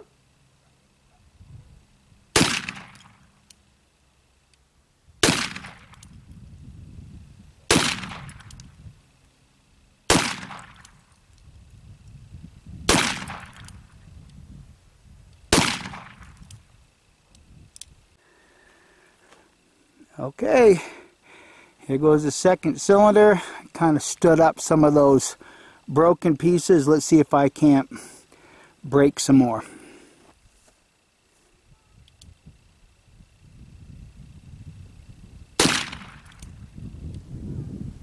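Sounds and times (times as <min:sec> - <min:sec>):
revolver gunshots: 0:02.3 - 0:03.3, 0:05.2 - 0:06.0, 0:07.7 - 0:08.5, 0:10.1 - 0:11.0, 0:12.9 - 0:13.7, 0:15.5 - 0:16.4, 0:35.6 - 0:36.4.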